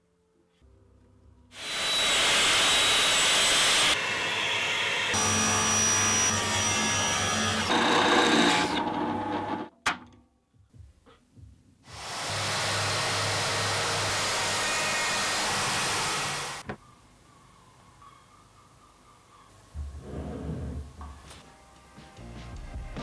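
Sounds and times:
table saw cutting: 0:01.6 - 0:09.7, 0:11.9 - 0:16.6
track saw cutting plywood: 0:01.6 - 0:09.7, 0:12.0 - 0:16.6.

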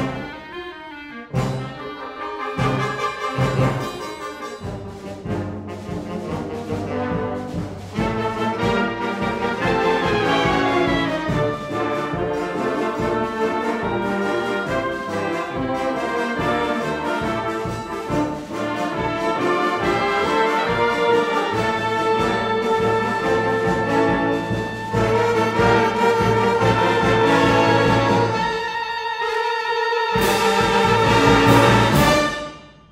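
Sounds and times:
wind band playing: 0:00.0 - 0:32.9
low percussion accents: 0:02.6 - 0:28.6.

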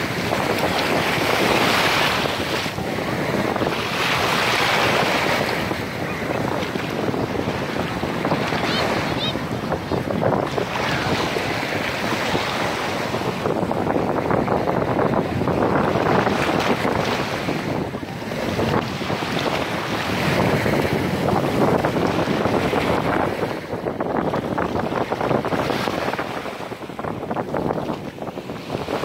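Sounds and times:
small waves breaking: 0:00.0 - 0:13.6
wind buffeting microphone: 0:00.0 - 0:29.0.

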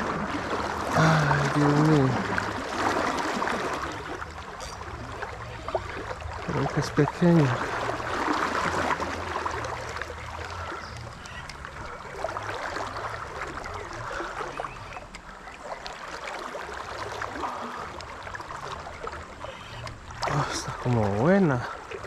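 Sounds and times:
river rushing: 0:00.0 - 0:22.0
faint ticks: 0:14.9 - 0:16.0.

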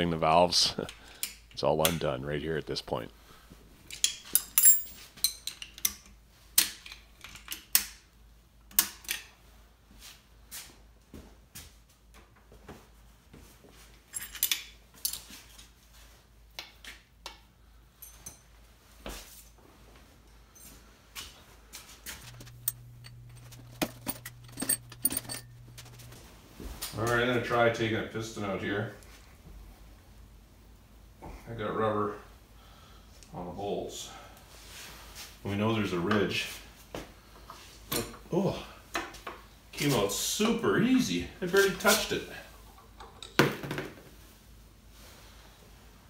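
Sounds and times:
hand tools clinking on metal: 0:03.9 - 0:06.0, 0:22.2 - 0:26.2
low steady hum: 0:22.1 - 0:28.2
wrenches clicking on metal: 0:22.2 - 0:26.2.

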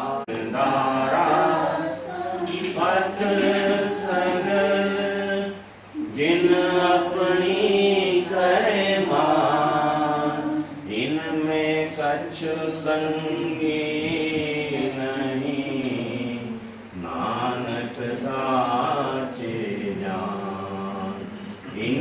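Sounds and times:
group singing a chant in unison: 0:00.0 - 0:22.0.

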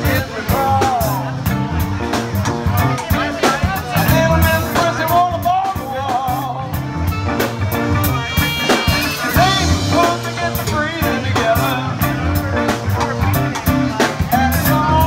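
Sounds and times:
drum kit beat: 0:00.0 - 0:15.0
electric bass: 0:00.0 - 0:15.0
electric guitar: 0:00.0 - 0:15.0
wavering melody line: 0:06.5 - 0:10.4.

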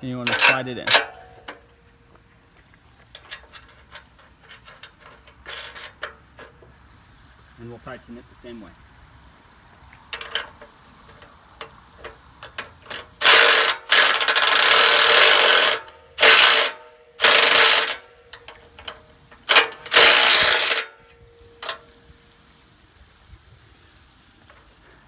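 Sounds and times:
impact driver hammering: 0:13.2 - 0:18.0, 0:19.5 - 0:20.9.

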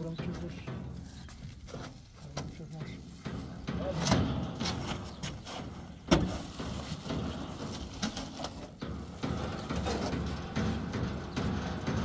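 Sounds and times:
bundle knocking on truck bed: 0:00.0 - 0:12.0.

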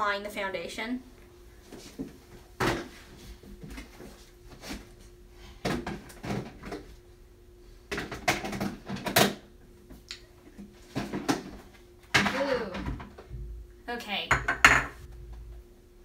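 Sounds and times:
faint steady hum: 0:00.0 - 0:16.0
makeup containers knocking and clattering: 0:14.3 - 0:15.0.

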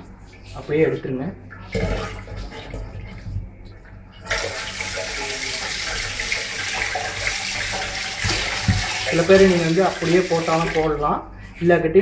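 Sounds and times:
water running into a steel sink: 0:04.2 - 0:11.0
kitchen tap turned on: 0:04.3 - 0:10.9.

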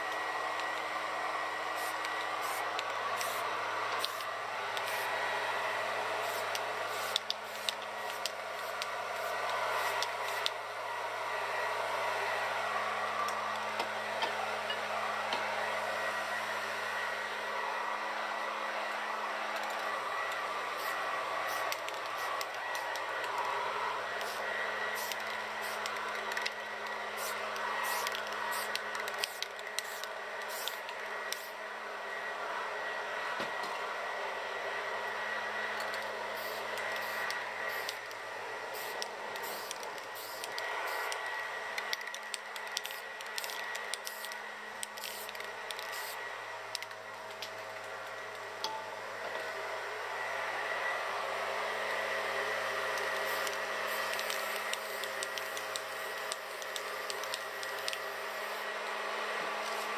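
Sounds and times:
leaf blower running: 0:00.0 - 0:48.6
spray paint can hissing: 0:01.7 - 0:03.4, 0:04.0 - 0:05.1, 0:06.2 - 0:10.6, 0:20.8 - 0:23.2, 0:24.2 - 0:24.4, 0:25.0 - 0:26.6, 0:27.2 - 0:31.5, 0:36.4 - 0:38.1, 0:38.7 - 0:46.2, 0:53.0 - 0:58.6.

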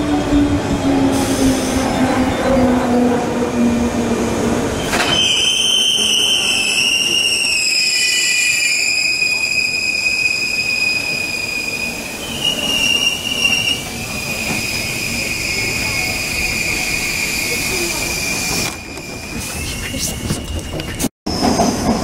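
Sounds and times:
train clank: 0:04.8 - 0:05.4, 0:18.4 - 0:22.0
high-pitched train squeal: 0:04.8 - 0:22.0.

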